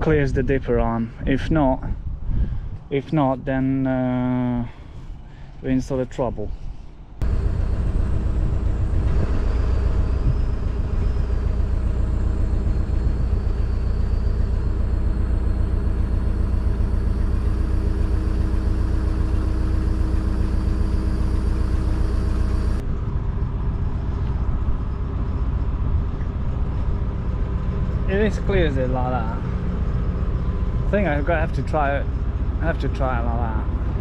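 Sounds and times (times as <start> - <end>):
excavator diesel engine running: 7.2 - 34.0
faint high whine: 7.2 - 34.0.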